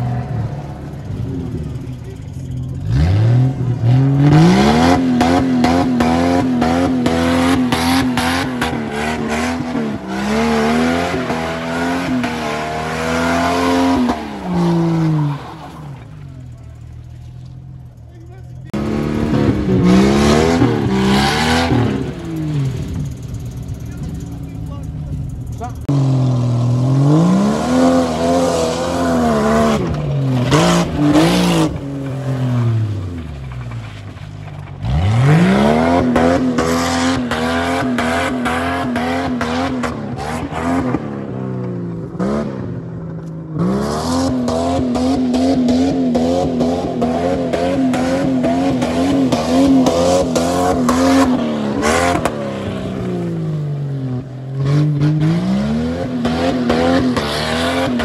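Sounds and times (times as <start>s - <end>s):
car engine revving hard: 0.0s - 16.1s, 18.7s - 23.2s, 25.8s - 33.6s, 34.8s - 58.0s.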